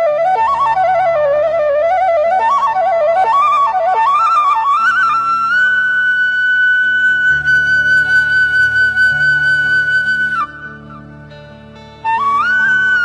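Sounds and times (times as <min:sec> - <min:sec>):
bamboo flute melody: 0:00.0 - 0:13.0.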